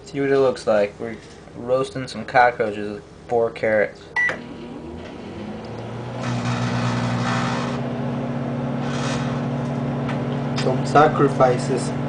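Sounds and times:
microwave oven hum: 4.1 - 12.0.

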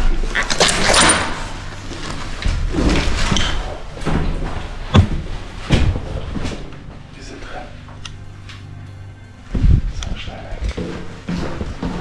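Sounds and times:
sharp thuds: 4.9 - 6.1.

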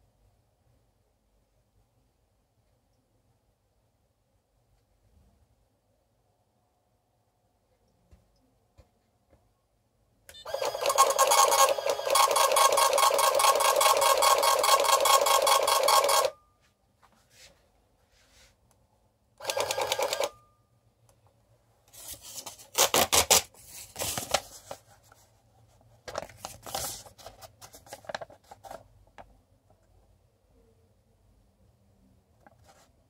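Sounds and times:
small printer printing: 10.3 - 16.4, 19.4 - 20.4
paper ripping and rustling: 22.0 - 24.8.

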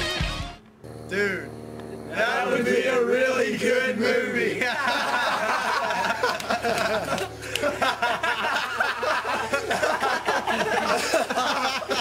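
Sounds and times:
young men laughing: 4.4 - 12.0.

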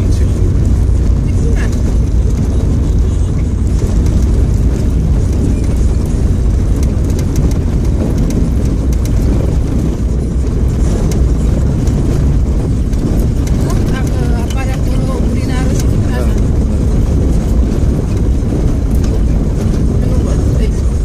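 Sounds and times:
car rumble on gravel: 0.0 - 21.0.

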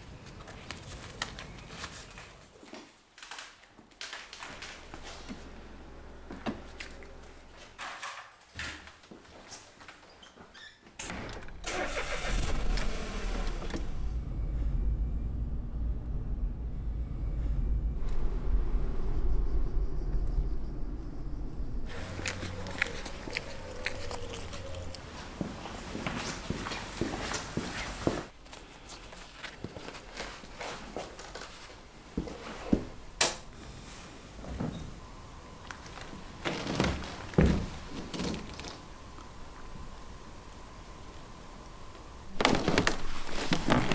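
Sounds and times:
car engine and road noise: 4.8 - 7.7, 11.5 - 25.4.

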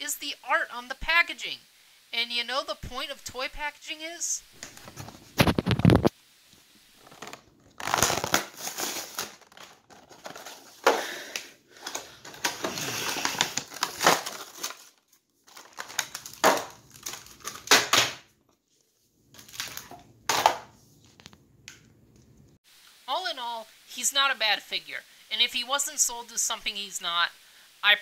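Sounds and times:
packaging being torn open: 7.0 - 10.8, 11.4 - 18.2, 19.4 - 19.9.

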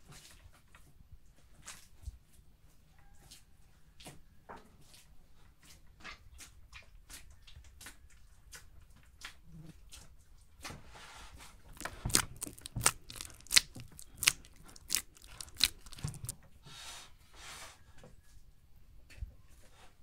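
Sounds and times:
sticky dough squelches and slaps: 6.4 - 10.9, 11.6 - 16.4
dough tearing and pulling: 11.4 - 16.4.

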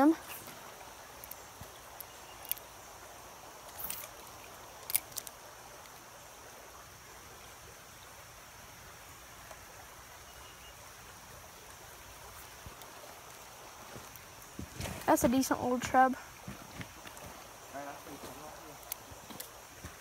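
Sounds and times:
creek water running: 0.0 - 20.0.

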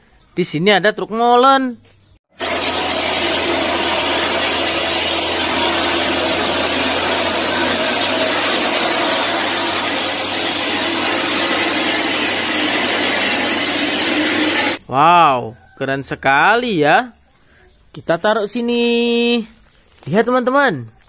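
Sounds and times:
site machinery running: 2.3 - 14.8.

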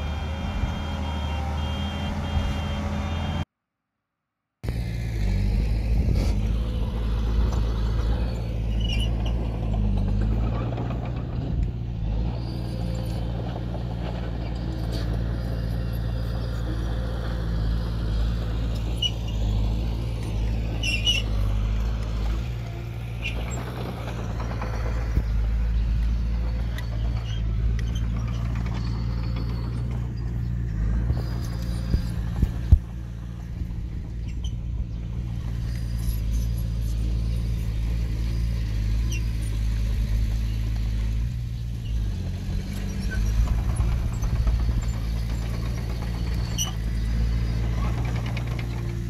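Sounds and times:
heavy diesel engine droning: 0.0 - 3.5, 4.6 - 49.0.

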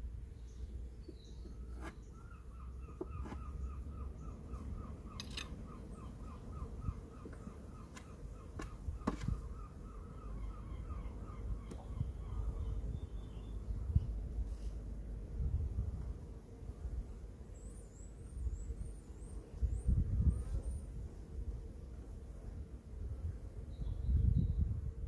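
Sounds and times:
wooden hive parts clicking: 5.1 - 5.6.

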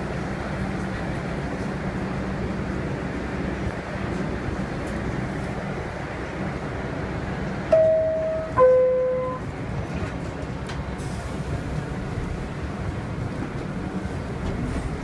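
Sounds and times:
subway car rumble and hiss: 0.0 - 15.0
two-tone descending door chime: 7.7 - 9.4.

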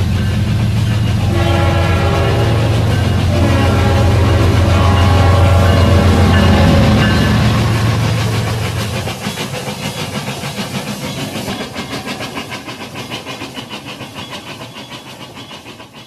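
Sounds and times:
hiss: 4.3 - 16.0
toy train clicking on track: 8.2 - 16.0.

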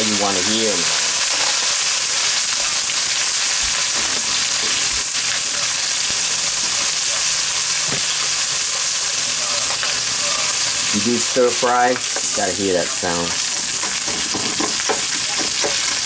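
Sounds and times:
food sizzling in hot oil: 0.0 - 16.0.

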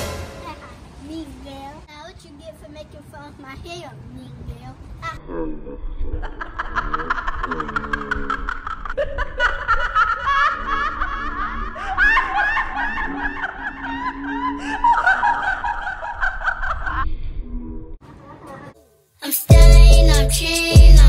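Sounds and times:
high-pitched rapid giggling: 6.2 - 15.4.

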